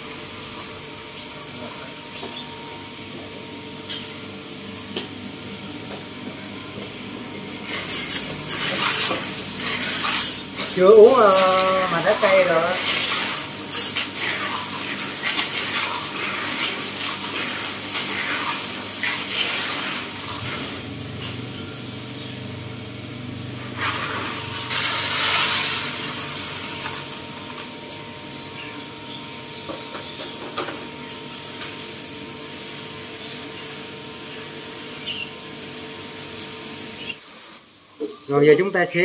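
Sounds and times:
coffee beans rattling in basin: 7.6s - 21.4s, 23.8s - 28.4s.

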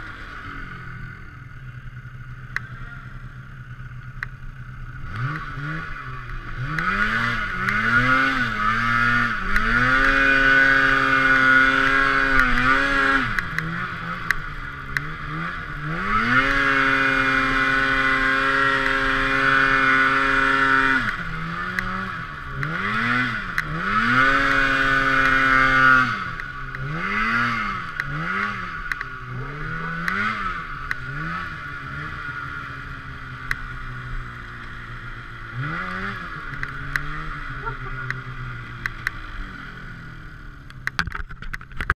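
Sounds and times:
snowmobile engine revving: 0.0s - 40.6s
sharp clicks: 4.0s - 4.4s, 13.3s - 15.1s, 27.9s - 29.1s, 35.8s - 37.2s.

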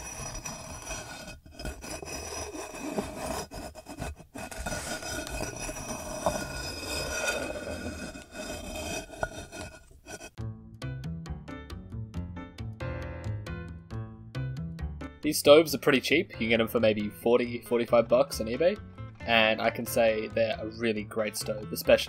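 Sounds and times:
metal pot scraping on wood: 0.0s - 10.4s.

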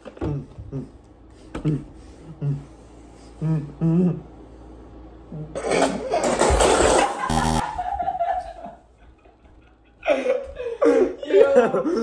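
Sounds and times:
closed-mouth hums and grunts: 0.1s - 4.4s, 5.2s - 5.8s
people laughing: 6.8s - 12.0s.

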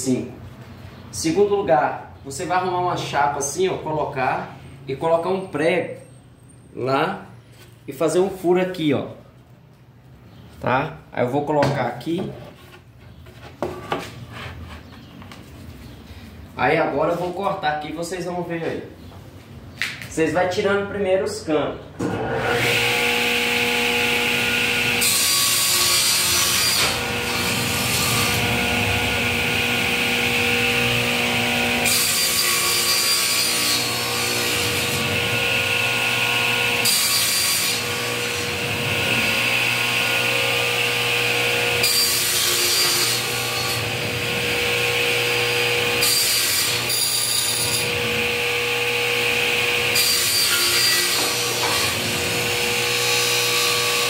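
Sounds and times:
table saw cutting panel: 22.0s - 54.0s.

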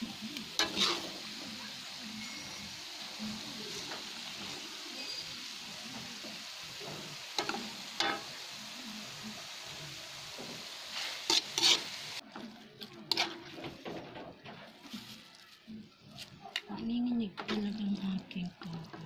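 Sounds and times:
food sizzling in a wok: 0.0s - 13.8s
metal spoon scraping pan: 0.6s - 1.3s, 10.9s - 12.1s, 13.1s - 13.8s.

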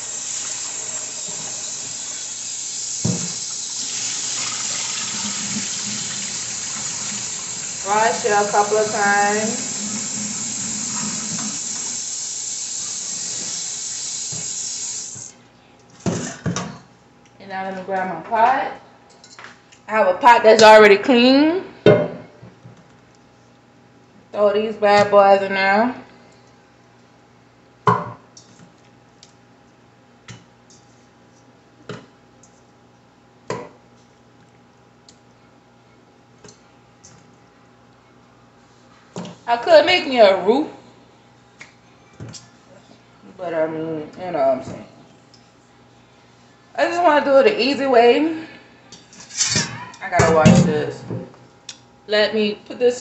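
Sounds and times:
tap running into sink: 3.0s - 4.6s.

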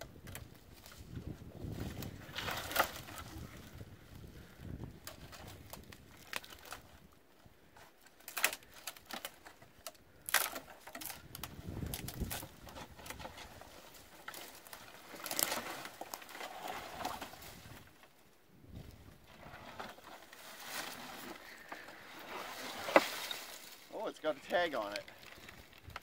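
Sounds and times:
twigs crackling and snapping: 0.0s - 26.0s
scraping and rustling: 10.5s - 18.0s, 18.9s - 26.0s
wooden crate dragged through debris: 12.0s - 18.0s, 18.8s - 26.0s.

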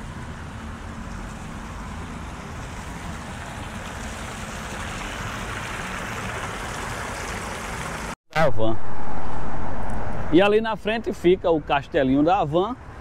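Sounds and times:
fountain water splashing: 0.3s - 8.2s.

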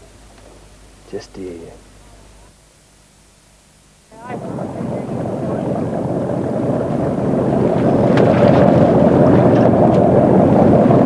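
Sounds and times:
wind on microphone: 4.1s - 11.0s.

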